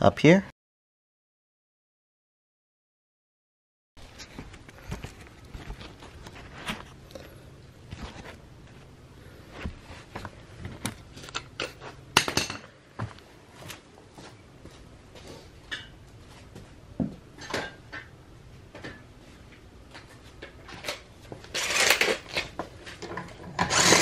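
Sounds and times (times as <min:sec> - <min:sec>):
footsteps on garage floor: 0:04.0 - 0:06.9, 0:09.5 - 0:10.9, 0:12.6 - 0:17.3
tools clinking and knocking: 0:10.8 - 0:12.7.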